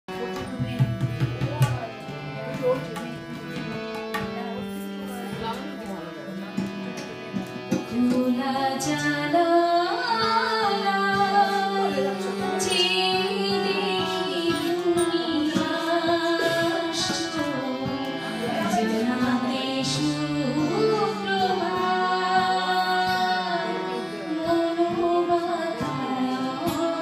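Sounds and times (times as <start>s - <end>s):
woman singing with vibrato: 7.9s - 27.0s.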